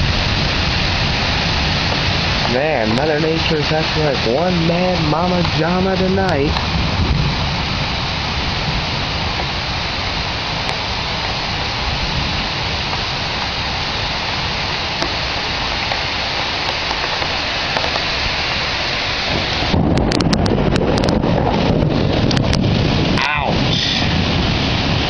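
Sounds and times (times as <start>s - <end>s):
heavy rain pouring: 0.0s - 25.0s
thunder rumbling: 0.0s - 25.0s
sharp crackling clicks: 1.8s - 6.7s, 10.6s - 11.4s, 14.7s - 18.2s, 19.7s - 21.2s, 22.2s - 22.7s.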